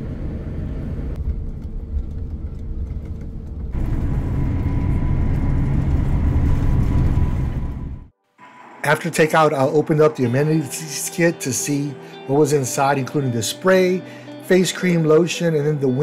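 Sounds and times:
jet engine rumble in cabin: 0.0 - 8.1.

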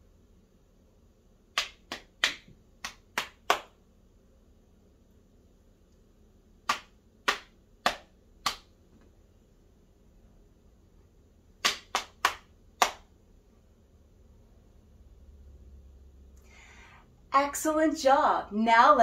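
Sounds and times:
hand claps: 1.5 - 3.8, 6.6 - 8.8, 11.6 - 13.1.

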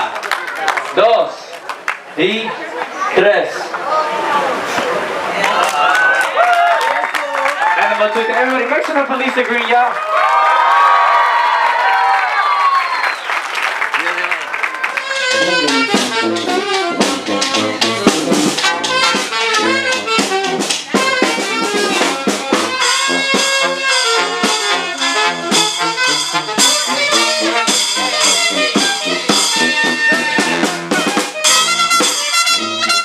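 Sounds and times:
brass band playing upbeat tune: 14.7 - 33.0
steady drum beat: 15.0 - 33.0.

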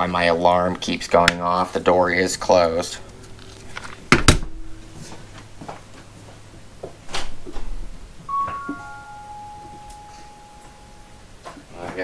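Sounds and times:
alarm system electronic chime: 8.3 - 11.4.

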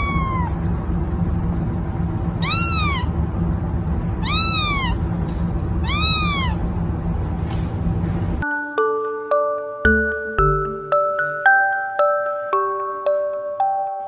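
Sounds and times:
kitten meowing: 0.0 - 0.6, 2.4 - 3.2, 4.2 - 5.0, 5.8 - 6.6
low hum: 0.0 - 9.1.

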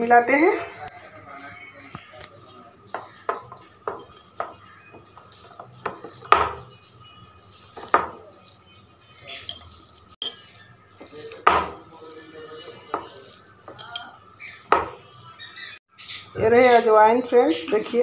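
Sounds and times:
knocks and clinks against plate: 2.9 - 6.6
hand squishing mashed potato: 3.0 - 15.3.

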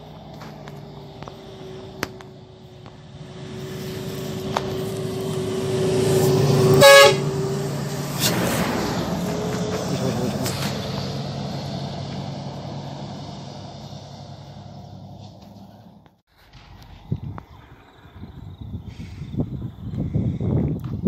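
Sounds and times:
bus engine passing: 0.0 - 20.3
bus horn blast: 3.6 - 8.2.

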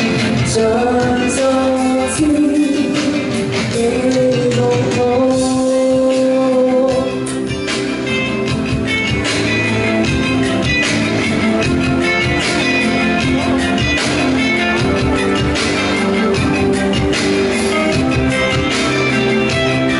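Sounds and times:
woman singing into a microphone: 0.0 - 8.0
loud instrumental accompaniment: 0.0 - 19.9.

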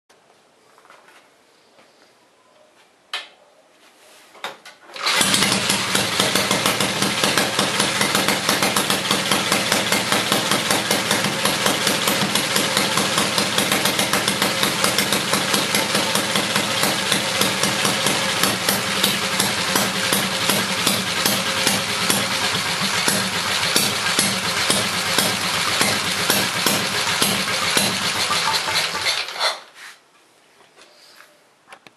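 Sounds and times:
motorcycle engine running: 5.0 - 29.4.

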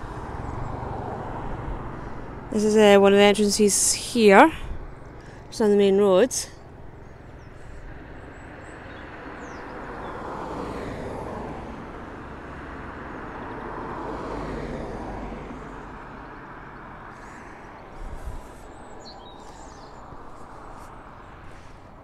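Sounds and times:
wind rumble on microphone: 0.0 - 3.6, 4.5 - 5.2, 13.6 - 22.0
vehicles passing: 0.0 - 22.0.

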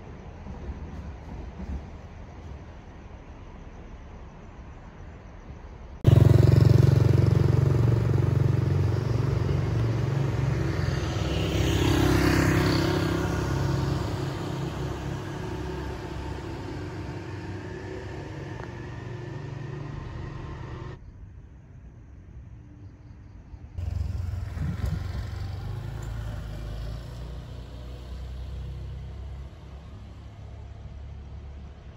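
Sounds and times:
heavy vehicle engine passing: 6.0 - 21.0, 23.8 - 31.9.

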